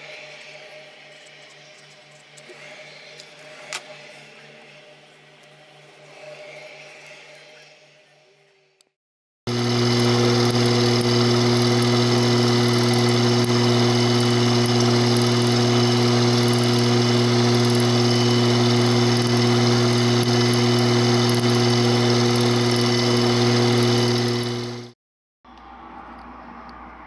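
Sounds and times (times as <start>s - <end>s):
end mill cutting metal: 0.0s - 8.5s, 9.5s - 25.0s
milling machine motor humming: 0.0s - 8.9s, 9.5s - 25.6s.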